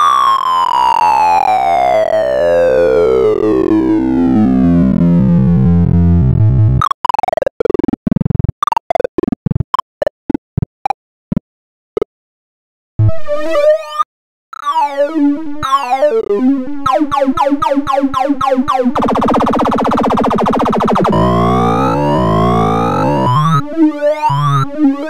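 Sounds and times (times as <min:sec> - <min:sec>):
synthesized tone gliding down: 0:18.9 - 0:24.7
short falling synth sweeps: 0:19.0 - 0:23.6.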